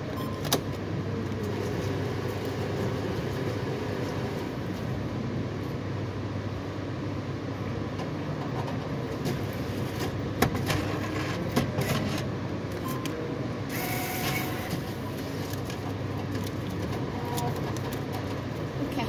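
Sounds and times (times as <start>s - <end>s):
cash machine mechanical whirr: 0.3s - 4.9s, 9.1s - 18.8s
cash machine clicks: 13.7s - 14.9s.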